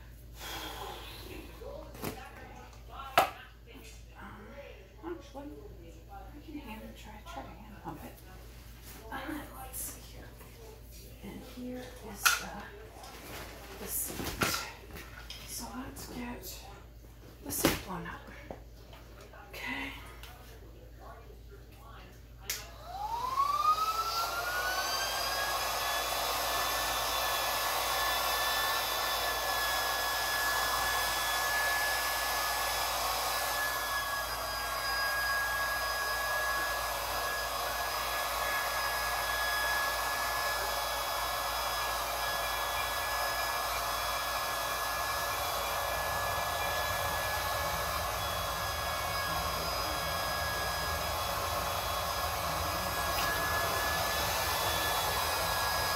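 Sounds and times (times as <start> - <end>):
air pump motor whining: 22.8 - 55.9.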